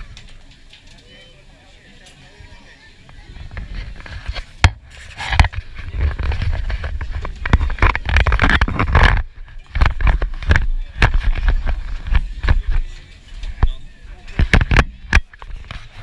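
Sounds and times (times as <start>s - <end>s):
camera handling knocks and rubbing: 4.0s - 12.8s, 14.4s - 16.0s.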